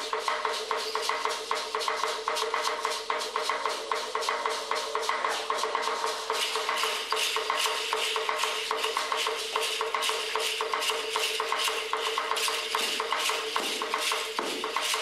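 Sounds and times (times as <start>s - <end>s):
rattles shaken in rhythm: 0.0s - 15.0s.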